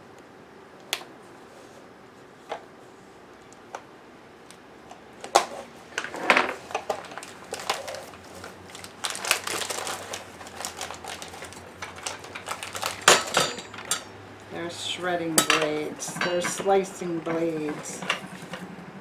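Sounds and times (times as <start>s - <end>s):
plastic wrapping crinkling: 6.6s - 14.0s.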